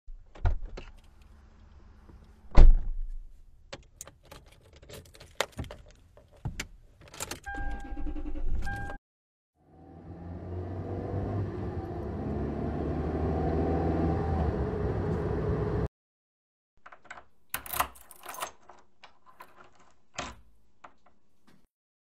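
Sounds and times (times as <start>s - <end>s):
car driving: 9.6s - 15.9s
key turning in door lock: 16.8s - 21.2s
keys jangling: 17.6s - 19.9s.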